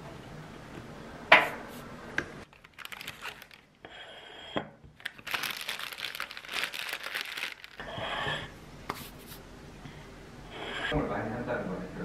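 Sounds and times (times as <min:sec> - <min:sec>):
paper bag rustling: 0:02.5 - 0:03.7, 0:05.0 - 0:07.8.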